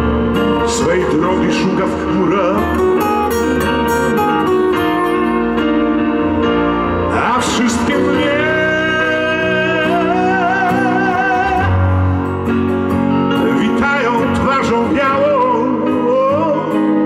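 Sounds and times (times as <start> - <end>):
guitar and backing accompaniment: 0.0 - 17.0
man singing long high note: 7.1 - 12.2.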